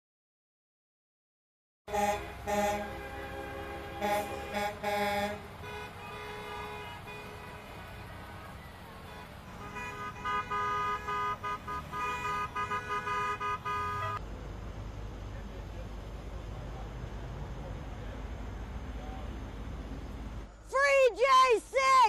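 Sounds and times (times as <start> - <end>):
vehicle horns honking: 1.9 - 14.2
low rumble of passing vehicles: 1.9 - 22.0.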